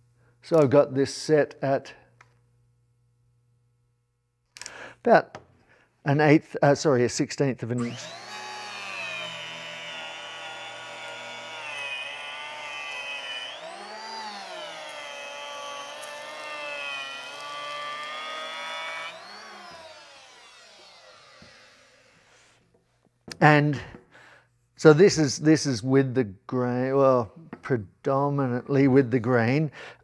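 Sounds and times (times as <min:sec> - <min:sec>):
planer winding down: 0:07.8 - 0:22.3
electric hand planer planing wood: 0:07.8 - 0:22.6.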